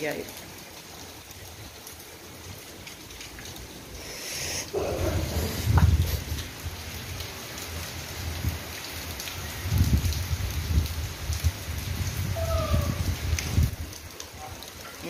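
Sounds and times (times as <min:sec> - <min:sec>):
rain on wet pavement: 0:00.0 - 0:15.0
wind rumbling on microphone: 0:04.6 - 0:07.3, 0:08.2 - 0:08.7, 0:09.4 - 0:14.1.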